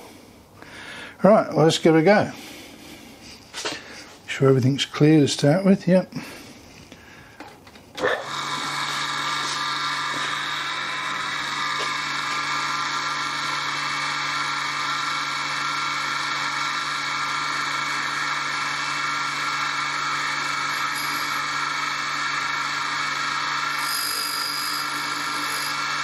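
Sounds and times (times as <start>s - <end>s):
grinding wheel motor hum and whine: 8.0s - 26.0s.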